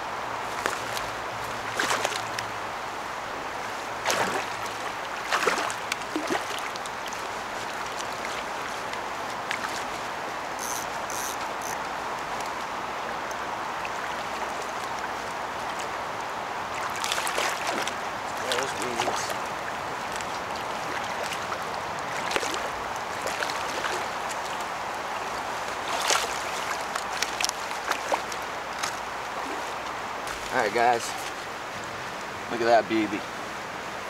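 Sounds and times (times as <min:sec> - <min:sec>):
river water running: 0:00.0 - 0:34.0
fish splashing in water: 0:00.5 - 0:02.4, 0:04.0 - 0:10.0, 0:16.7 - 0:30.6.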